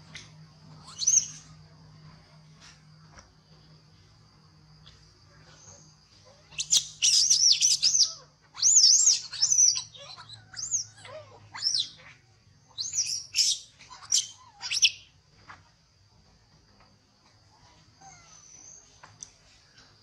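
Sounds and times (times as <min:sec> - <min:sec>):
high insect drone: 0:00.0 - 0:15.5
monkeys squealing: 0:06.4 - 0:15.0.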